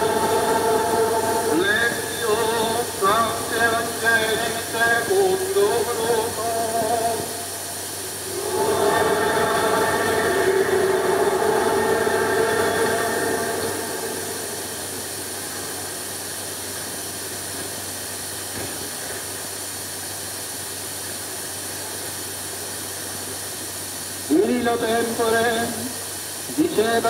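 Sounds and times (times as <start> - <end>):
male choir singing: 0.0 - 7.4, 8.1 - 15.2
film soundtrack hiss: 0.0 - 27.0.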